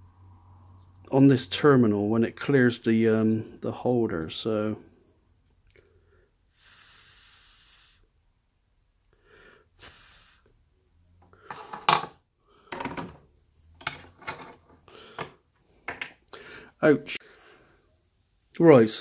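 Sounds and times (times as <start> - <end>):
tools clicking and clattering: 13.8 - 16.2.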